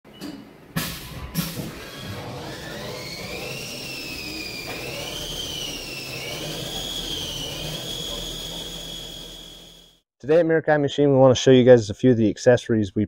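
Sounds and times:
rushing whir: 1.4s - 10.0s
high wavering whine: 3.2s - 9.9s.

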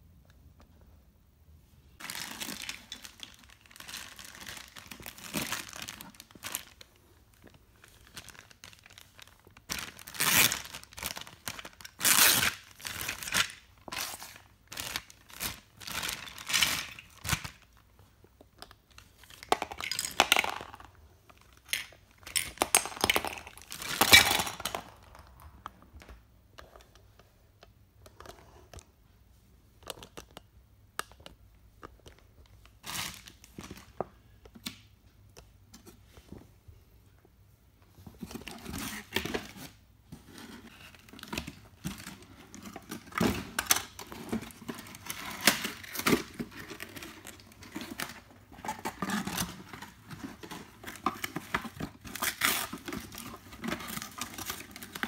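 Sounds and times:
plastic bag crinkling: 2.0s - 17.7s
plastic toy pieces clinking on floor: 19.4s - 20.9s, 21.7s - 24.9s.

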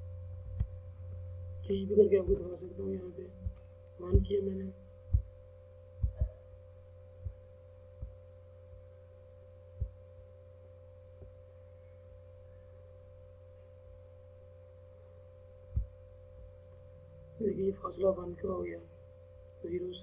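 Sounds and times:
dull low thumps: 0.0s - 8.9s, 9.7s - 10.3s, 15.7s - 16.6s
steady electrical hum: 0.0s - 20.0s.

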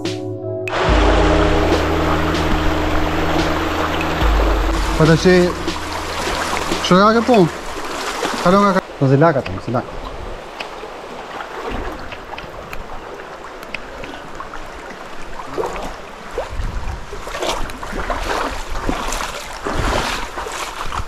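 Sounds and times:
water splashing from wading: 0.7s - 21.0s
wind buffeting microphone: 15.8s - 21.0s.

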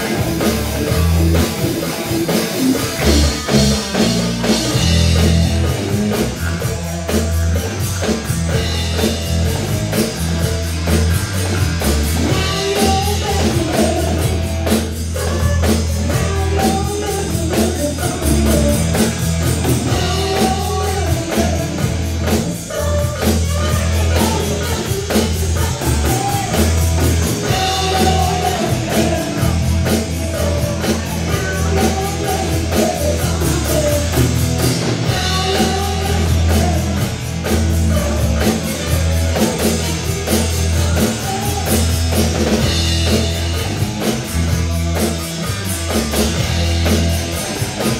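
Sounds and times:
drum kit: 0.0s - 47.9s
electric bass: 0.0s - 47.9s
electric guitar: 0.0s - 47.9s
woman singing lead: 12.2s - 19.0s, 19.8s - 26.7s, 27.3s - 34.3s.

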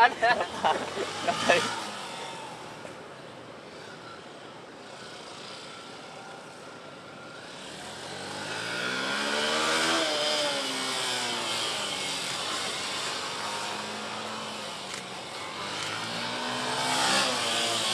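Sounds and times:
motorcycle engine revving: 0.0s - 2.9s, 7.2s - 17.9s.

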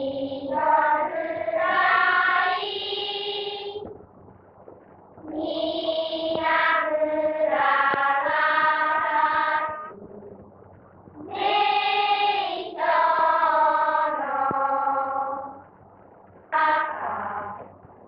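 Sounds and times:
voices singing together: 0.0s - 3.9s, 5.2s - 10.5s, 11.2s - 15.7s, 16.5s - 17.8s.

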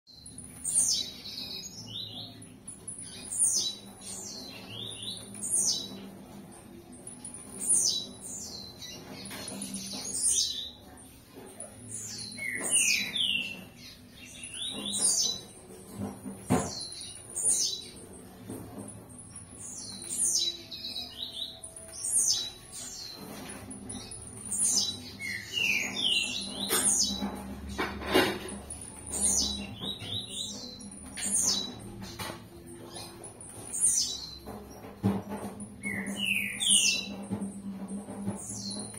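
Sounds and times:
bird singing short high song: 35.8s - 37.2s.

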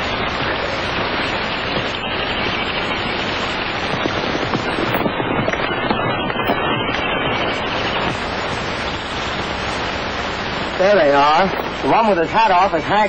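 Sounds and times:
horses galloping hoofbeats: 0.0s - 9.6s.

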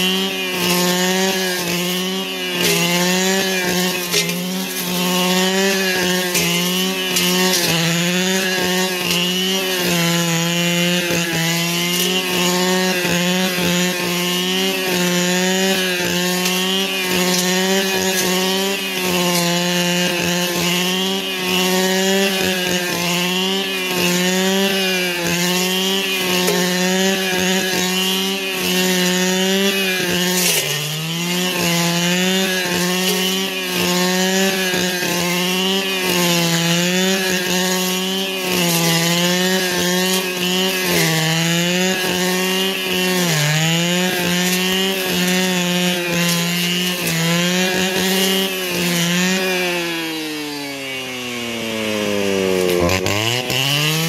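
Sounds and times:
brush cutter engine at high throttle: 0.0s - 54.0s.

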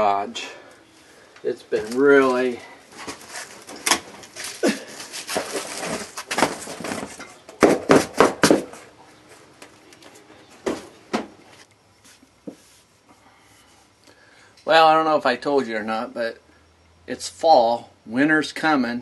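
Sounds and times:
cardboard rustling and scraping: 1.8s - 9.0s.

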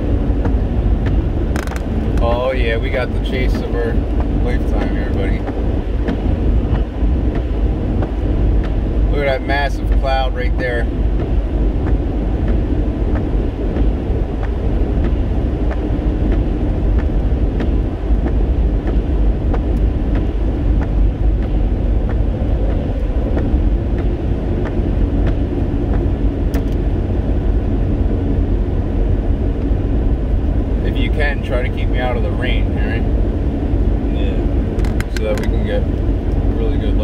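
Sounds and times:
car driving on wet road: 0.0s - 37.0s
sharp click: 0.4s - 2.3s, 22.7s - 26.8s, 34.8s - 35.6s
faint regular ticking: 0.4s - 27.9s.

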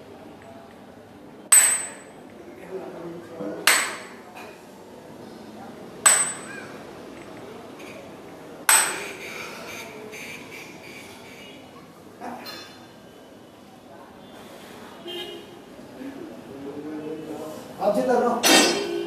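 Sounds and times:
dumbbells clanking together: 6.1s - 6.6s, 18.4s - 19.0s.

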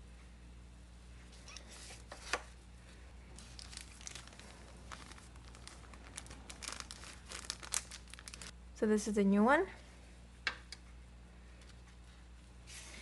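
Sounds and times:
bag rustling and crackling: 3.4s - 8.5s
plastic bag ripping: 3.4s - 8.5s.

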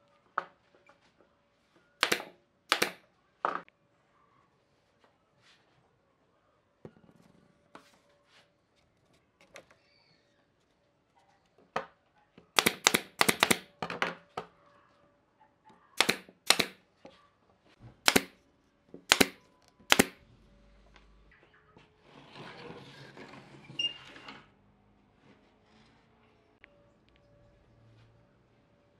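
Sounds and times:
nail gun firing: 2.0s - 3.0s, 12.6s - 13.7s, 16.0s - 16.8s, 18.0s - 18.4s, 19.1s - 20.2s.

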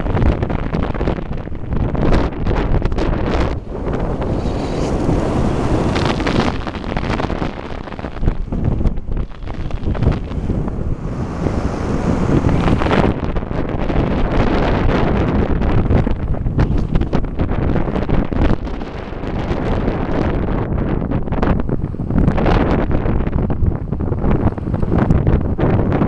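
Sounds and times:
car road noise: 0.0s - 17.4s
wind buffeting microphone: 0.0s - 26.0s.

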